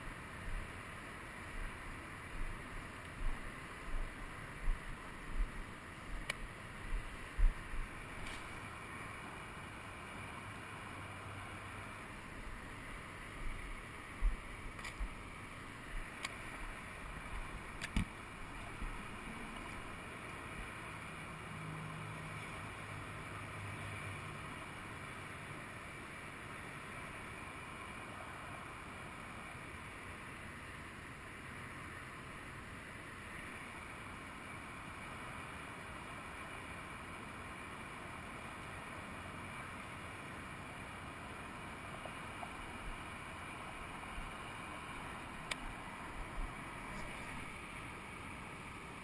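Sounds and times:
distant traffic hum: 0.0s - 49.0s.

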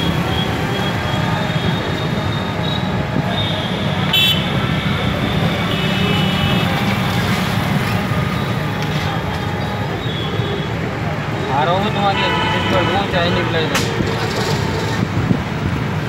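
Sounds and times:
vehicle horns tooting: 0.0s - 7.0s, 11.4s - 14.0s.

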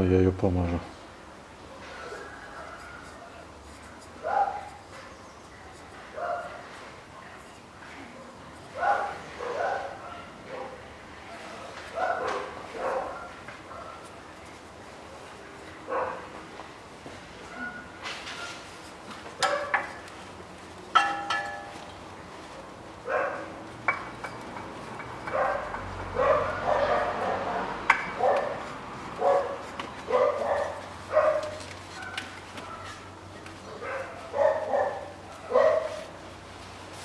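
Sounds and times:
dog barking: 4.2s - 5.2s, 6.1s - 6.7s, 8.2s - 14.0s, 15.9s - 16.3s, 17.5s - 18.5s, 19.4s - 19.8s, 23.0s - 23.5s, 25.3s - 28.6s, 29.2s - 33.1s, 33.7s - 36.1s.

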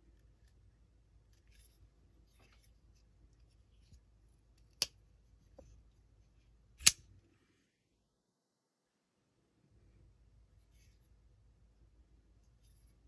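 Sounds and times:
folding knife blade clicks: 6.8s - 7.0s.

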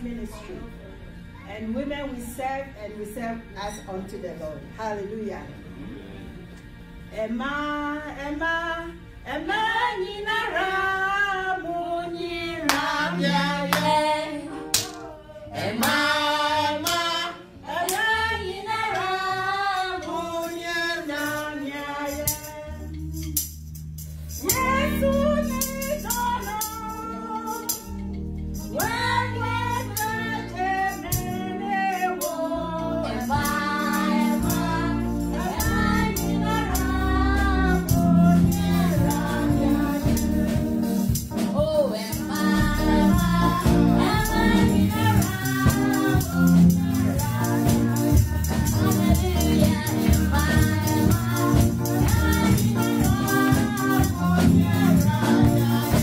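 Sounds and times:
low instrumental accompaniment: 0.0s - 56.0s
percussion keeping time: 12.6s - 56.0s.

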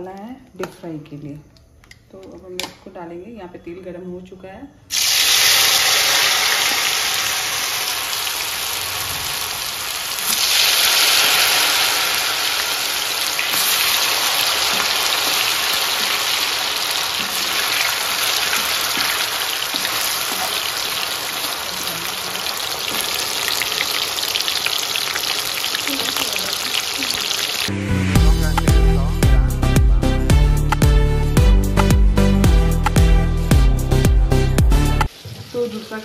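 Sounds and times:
food sizzling in hot oil: 4.9s - 28.1s, 35.1s - 36.0s.

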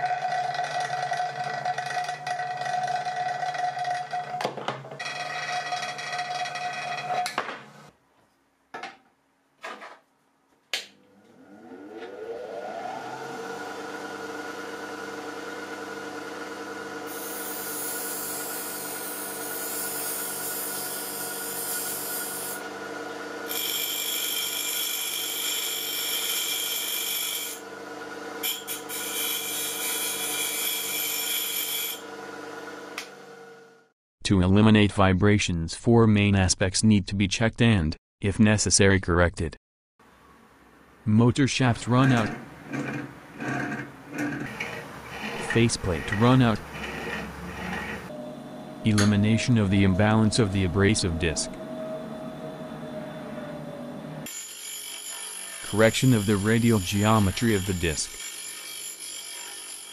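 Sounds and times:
bench grinder running: 0.0s - 4.4s, 5.0s - 7.4s, 11.4s - 33.5s, 42.0s - 48.4s, 49.8s - 59.9s
steel blade grinding on wheel: 0.0s - 4.4s, 5.0s - 7.3s, 17.1s - 22.7s, 23.4s - 27.7s, 28.4s - 32.0s, 42.0s - 48.2s, 54.2s - 59.9s
grinder whine spinning up: 11.0s - 33.9s, 42.1s - 54.5s.

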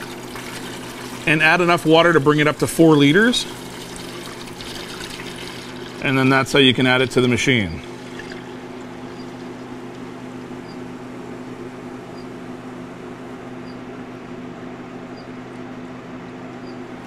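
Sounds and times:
water pouring into bowl: 0.0s - 10.5s
slush machine humming: 0.0s - 17.0s.

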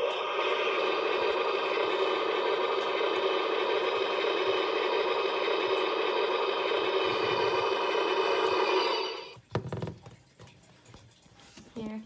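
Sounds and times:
toy electronic blast sound effect: 0.0s - 9.4s.

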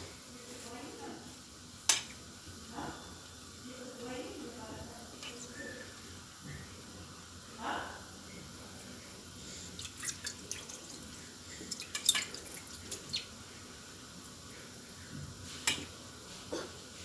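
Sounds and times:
wet noodles clicking and crackling: 9.7s - 13.3s.

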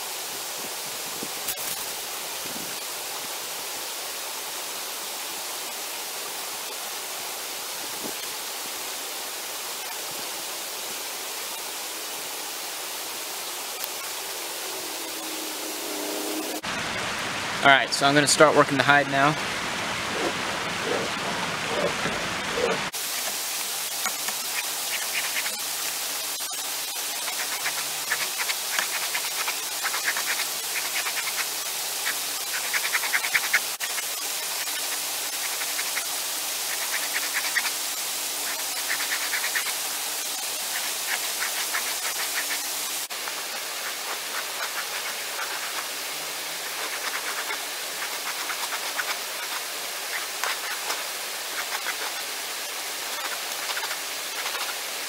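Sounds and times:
steady rushing noise: 13.7s - 55.0s
scratchy rubbing of hide: 24.1s - 25.8s, 27.1s - 37.8s, 38.4s - 39.8s, 40.5s - 52.2s, 53.1s - 54.7s.

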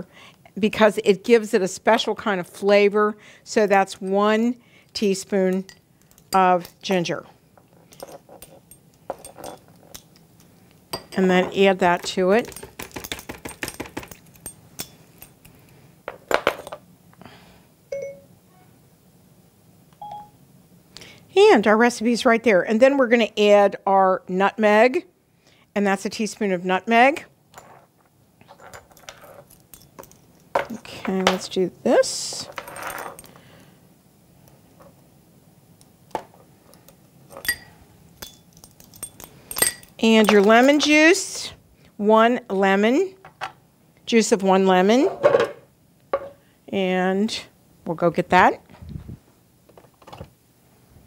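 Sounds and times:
metal spoons clinking: 7.9s - 10.1s, 12.0s - 15.4s, 28.7s - 30.2s, 37.3s - 40.7s
short beep: 17.9s - 18.3s, 20.0s - 20.4s
spoon clinking against spice jar: 37.4s - 40.4s.

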